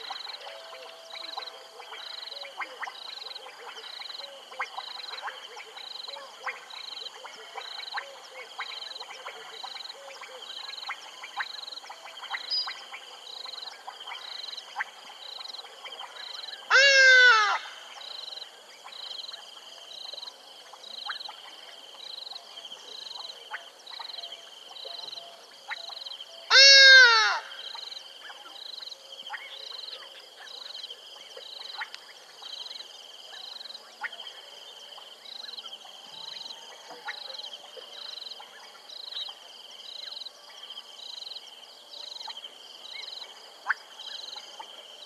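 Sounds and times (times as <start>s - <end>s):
loud nasal animal call: 16.7s - 17.7s, 26.5s - 27.5s
frog trilling: 16.7s - 17.8s, 26.5s - 27.6s
clicking frog calls: 22.3s - 28.0s, 31.4s - 32.8s.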